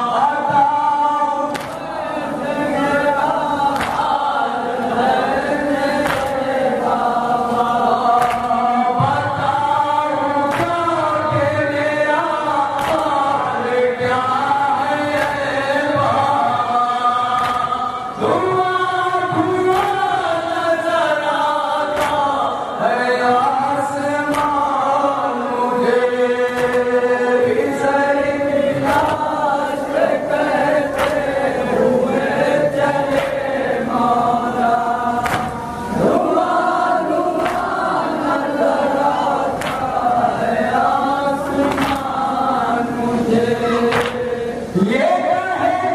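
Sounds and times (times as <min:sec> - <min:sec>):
men chanting in unison: 0:00.0 - 0:45.9
reciter singing into a microphone: 0:00.0 - 0:45.9
hands slapping chests: 0:01.5 - 0:01.9, 0:03.7 - 0:04.3, 0:06.0 - 0:06.6, 0:08.2 - 0:08.6, 0:10.5 - 0:10.8, 0:12.8 - 0:13.2, 0:15.2 - 0:15.5, 0:17.3 - 0:17.8, 0:19.7 - 0:20.1, 0:21.9 - 0:22.4, 0:24.3 - 0:24.6, 0:26.5 - 0:26.9, 0:28.8 - 0:29.3, 0:30.9 - 0:31.4, 0:33.0 - 0:33.5, 0:35.2 - 0:35.6, 0:37.3 - 0:37.8, 0:39.6 - 0:40.0, 0:41.6 - 0:42.2, 0:43.9 - 0:44.2.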